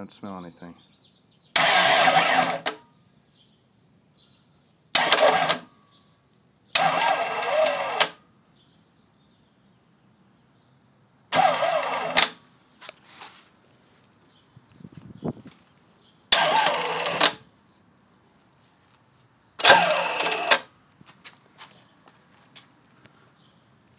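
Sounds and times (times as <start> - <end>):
diesel engine cranking: 1.6 - 2.8, 5.0 - 5.8, 6.7 - 8.2, 11.3 - 12.4, 16.3 - 17.5, 19.6 - 20.7
starter click: 5.0 - 5.7.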